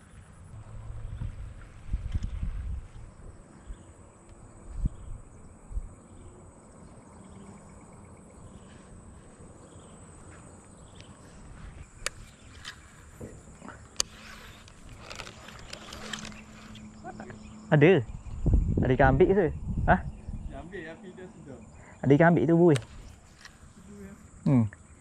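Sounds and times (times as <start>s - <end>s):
sharp clicks: 13.9s - 17.0s, 22.7s - 23.6s
high-pitched insect drone: 14.0s - 22.7s.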